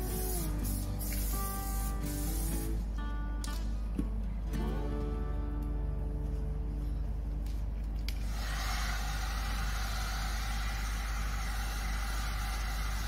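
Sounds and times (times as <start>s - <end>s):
heat gun blowing hiss: 0.0s - 2.8s, 8.3s - 13.0s.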